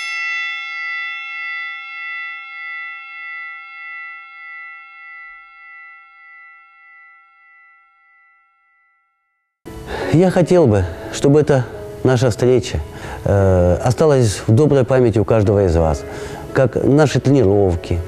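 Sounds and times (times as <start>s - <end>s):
struck metal bell ringing: 0.0s - 9.5s.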